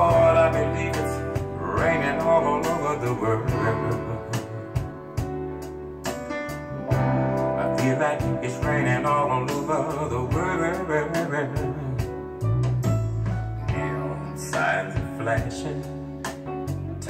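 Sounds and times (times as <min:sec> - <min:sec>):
man singing with vibrato: 0:00.0 - 0:05.1, 0:07.6 - 0:12.3, 0:13.7 - 0:15.9
soul ballad over speakers: 0:00.0 - 0:17.0.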